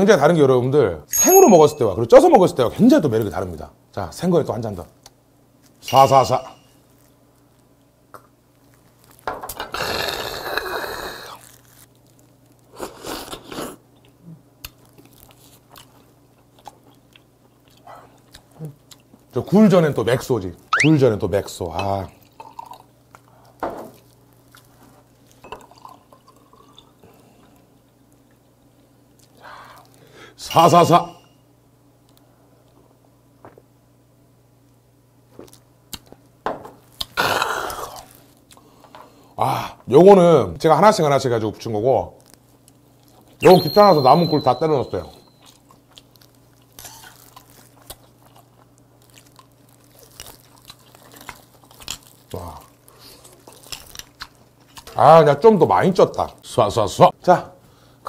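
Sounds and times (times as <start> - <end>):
soft chewing clicks: 14.0 - 19.4.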